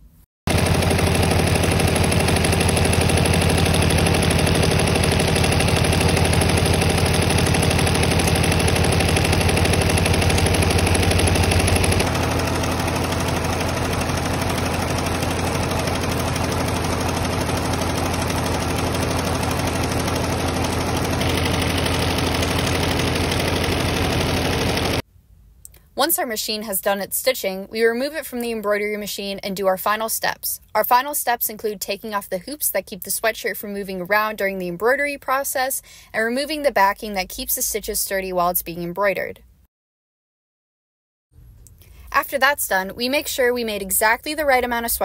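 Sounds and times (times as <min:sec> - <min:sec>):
embroidery machine rattling: 0:00.5 - 0:25.0.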